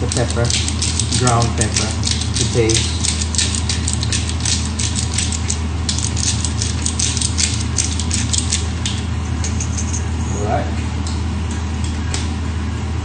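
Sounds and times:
pepper mill grinding clicks: 0.0s - 10.0s
steady low hum: 0.0s - 13.0s.

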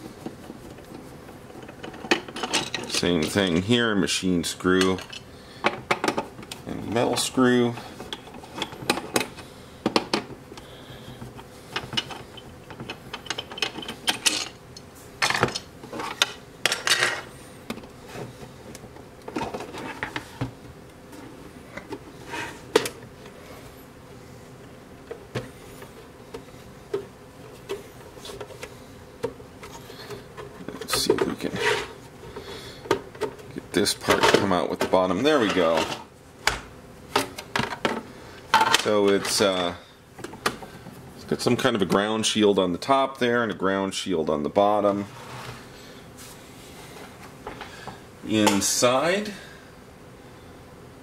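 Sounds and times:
plastic parts clattering: 1.6s - 3.4s.

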